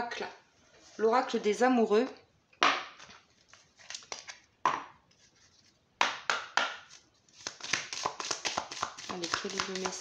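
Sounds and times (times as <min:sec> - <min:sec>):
cards shuffled by hand: 0:06.9 - 0:10.0.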